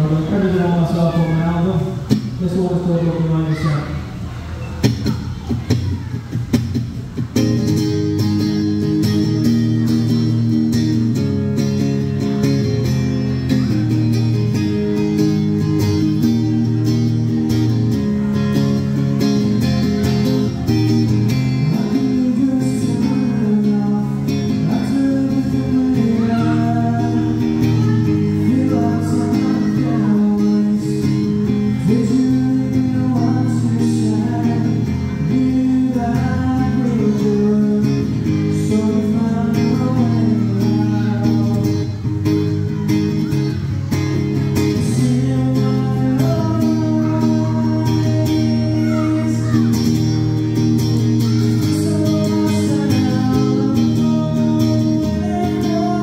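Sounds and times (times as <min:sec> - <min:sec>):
acoustic guitar strummed: 0:00.0 - 0:03.7, 0:04.6 - 0:56.0
man singing: 0:00.0 - 0:03.8, 0:21.3 - 0:42.1, 0:44.6 - 0:50.0, 0:51.0 - 0:56.0.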